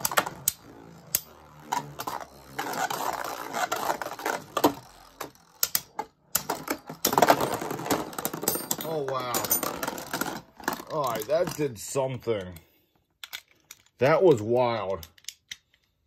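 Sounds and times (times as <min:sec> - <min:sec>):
spinning tops whirring: 0:00.0 - 0:11.6.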